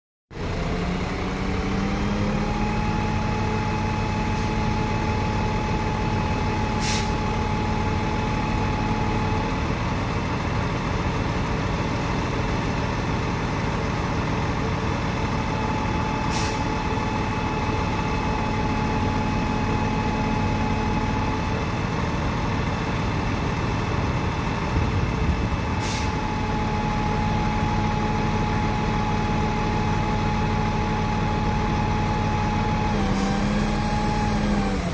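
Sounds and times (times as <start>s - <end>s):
truck engine running: 0.3s - 34.9s
hydraulic whine: 31.1s - 34.9s.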